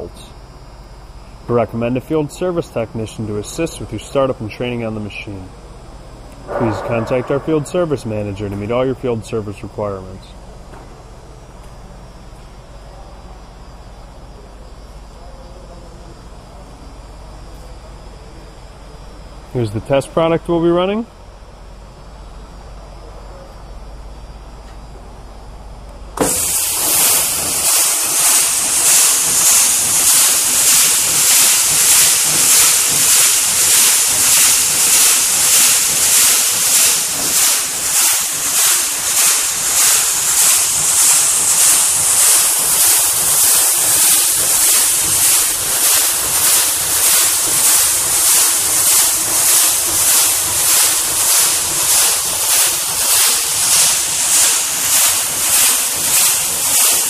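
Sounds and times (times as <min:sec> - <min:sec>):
paddle mixer churning hiss: 0:00.0 - 0:05.6, 0:26.2 - 0:57.0
low hum: 0:05.5 - 0:11.5.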